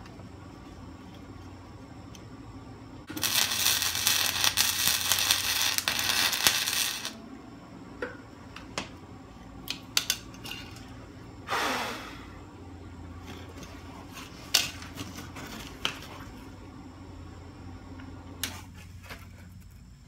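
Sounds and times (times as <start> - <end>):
welder arc crackling: 3.0 - 7.2.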